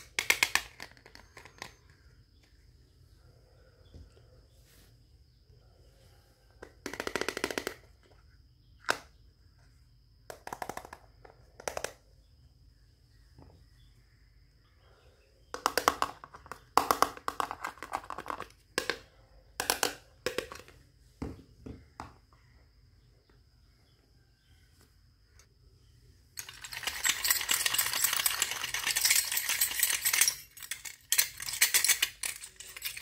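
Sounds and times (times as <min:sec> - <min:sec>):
plastic toy pieces rattling: 0:00.0 - 0:01.9, 0:26.4 - 0:33.0.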